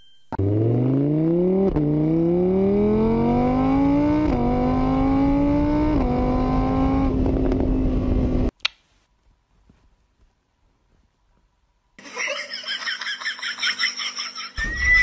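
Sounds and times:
motorcycle engine accelerating: 0.4 - 8.5.

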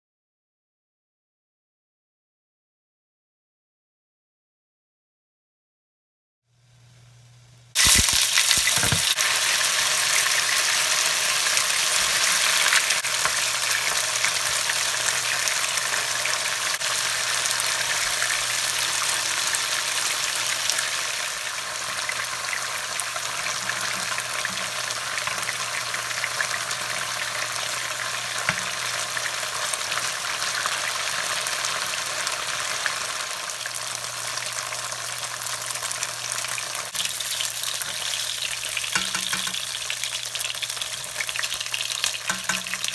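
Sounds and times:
tofu sizzling in hot oil: 7.7 - 42.9.

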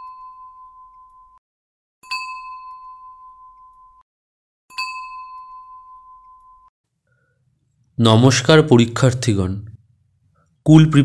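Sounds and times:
bell-like ding: 0.0 - 1.4, 2.0 - 4.0, 4.7 - 6.7.

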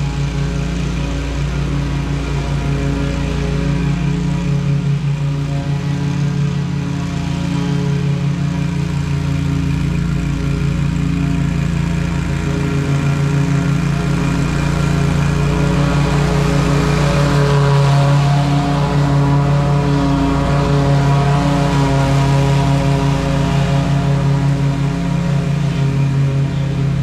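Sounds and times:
mower engine running: 0.0 - 27.0.

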